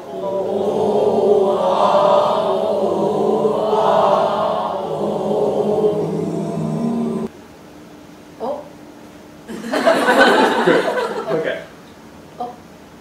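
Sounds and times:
chorus of voices chanting: 0:00.0 - 0:07.3.

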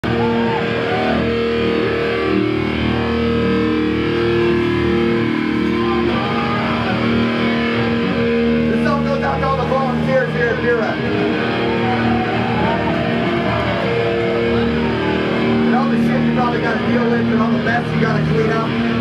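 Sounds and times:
rock band with distorted guitar: 0:00.0 - 0:19.0
person shouting: 0:05.8 - 0:07.0.

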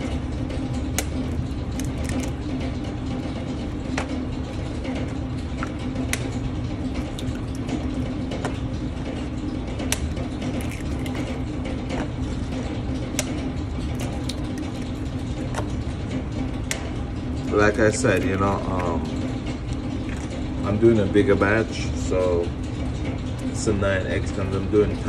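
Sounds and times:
low mechanical hum: 0:00.0 - 0:25.0
eggshell cracking: 0:01.1 - 0:02.4, 0:10.6 - 0:11.4.

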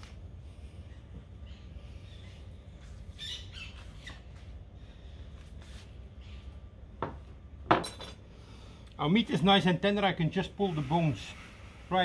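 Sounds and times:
bird squawking: 0:01.4 - 0:04.3.

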